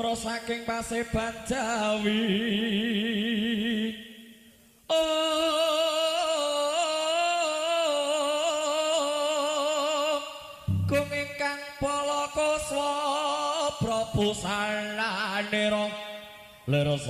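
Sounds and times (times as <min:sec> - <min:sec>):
person singing with vibrato: 0:00.0 - 0:17.0
low drone: 0:10.6 - 0:11.6.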